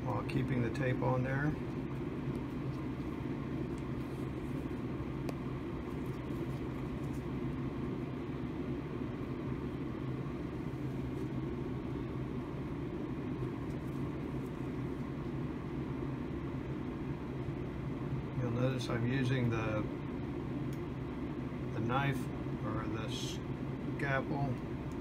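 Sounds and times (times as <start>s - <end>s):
blower fan humming: 0.0s - 25.0s
faint clicks of handling tape: 3.7s - 7.3s, 20.7s - 20.9s.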